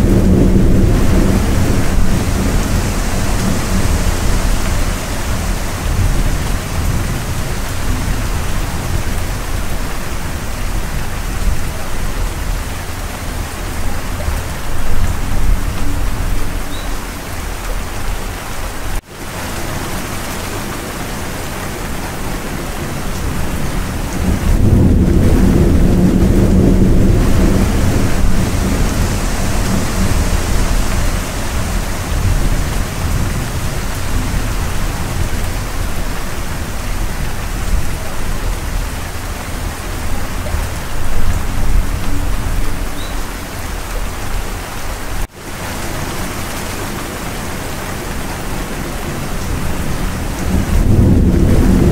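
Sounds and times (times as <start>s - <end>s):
heavy rain: 0.0s - 51.9s
thunder rumble: 0.0s - 51.9s.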